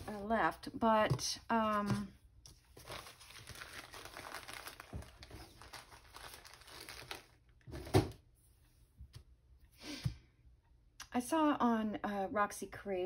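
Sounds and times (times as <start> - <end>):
paper rustling and crinkling: 1.1 - 8.1.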